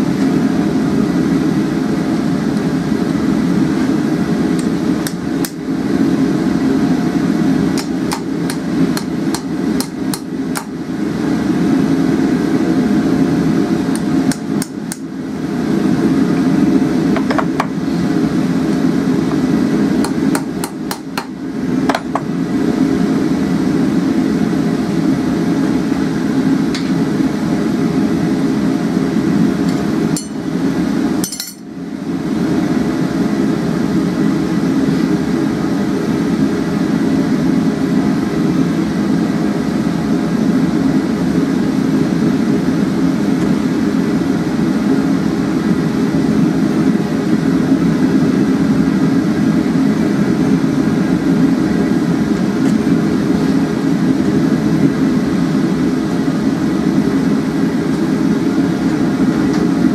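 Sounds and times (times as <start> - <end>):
gas burner roar: 0.0 - 59.9
hammer striking steel on anvil: 30.2 - 30.4, 31.2 - 31.6.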